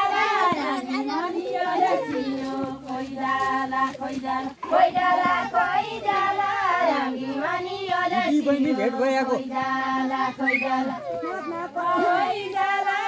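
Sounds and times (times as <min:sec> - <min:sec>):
women singing folk song: 0:00.0 - 0:13.0.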